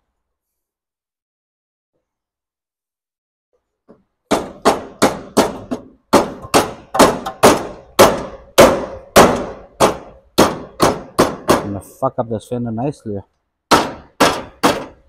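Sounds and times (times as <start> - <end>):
hammer striking steel bodywork: 4.3 - 11.8, 13.7 - 15.0.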